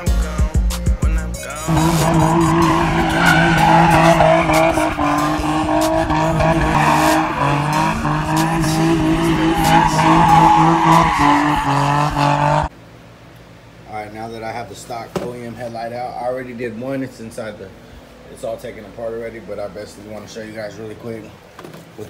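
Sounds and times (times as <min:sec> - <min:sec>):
car engine at high revs: 0:01.6 - 0:12.7
tyres squealing: 0:01.6 - 0:12.7.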